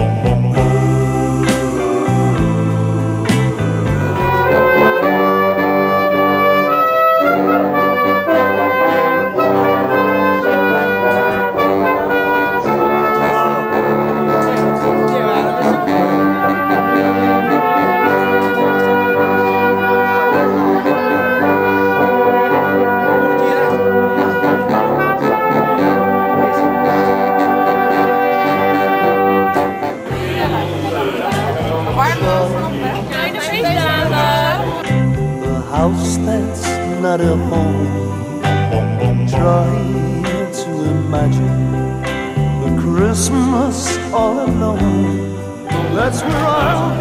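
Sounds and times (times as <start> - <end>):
wind band playing a tune: 0.6 - 34.9, 45.6 - 47.0.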